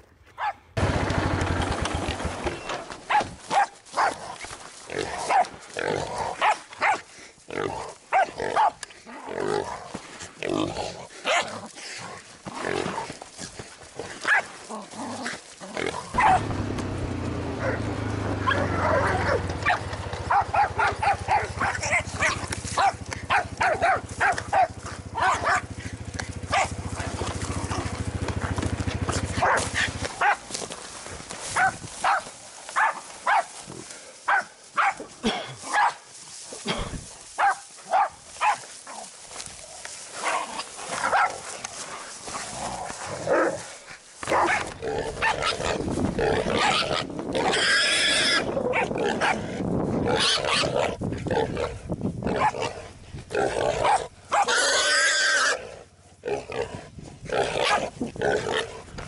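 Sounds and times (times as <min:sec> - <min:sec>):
dogs barking: 0:00.4 - 0:00.6, 0:03.1 - 0:04.2, 0:05.2 - 0:05.6, 0:06.4 - 0:07.1, 0:08.1 - 0:08.8, 0:14.2 - 0:14.6, 0:16.1 - 0:30.6, 0:31.5 - 0:33.6, 0:34.3 - 0:36.0, 0:37.4 - 0:38.7, 0:40.2 - 0:41.5, 0:44.2 - 0:45.6, 0:48.7 - 0:49.4, 0:52.3 - 0:52.7, 0:53.7 - 0:54.7.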